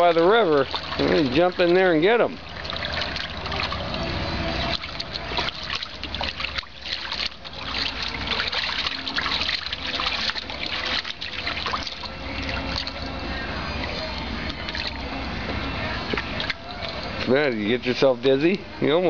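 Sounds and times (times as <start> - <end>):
dog splashing in water: 0.0 - 13.2.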